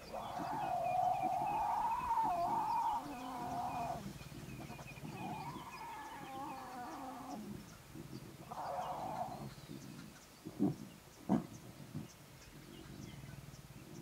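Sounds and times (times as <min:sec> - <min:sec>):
lion cubs growling: 0:00.0 - 0:09.9.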